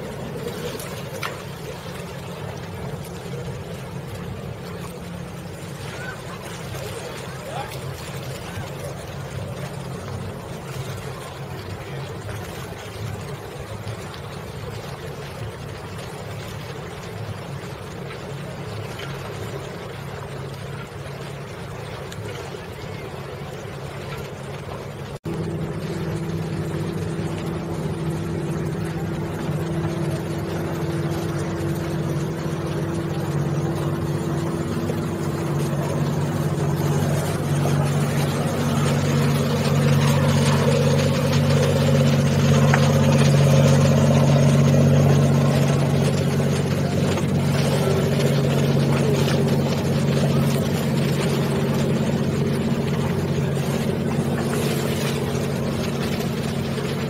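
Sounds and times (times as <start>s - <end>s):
boat engine running: 0.0s - 57.0s
wind and water hiss: 0.0s - 57.0s.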